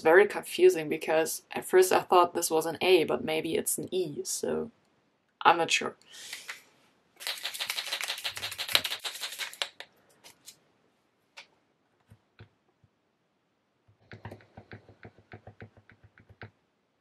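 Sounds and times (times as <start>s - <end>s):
marker clicks: 7.2s - 9.9s
paint marker ball rattling: 7.2s - 9.9s
marker nib tapping on paper: 14.0s - 16.6s.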